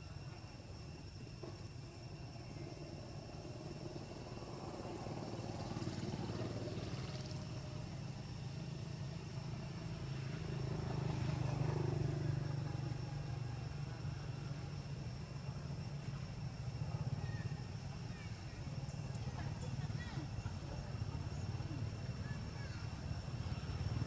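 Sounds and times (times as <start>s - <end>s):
vehicle engine droning past: 3.8s - 14.4s.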